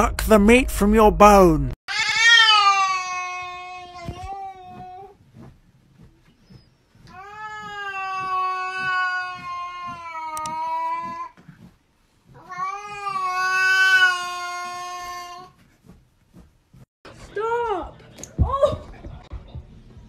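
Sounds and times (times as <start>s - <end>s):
cat yowling: 1.9s - 4.8s.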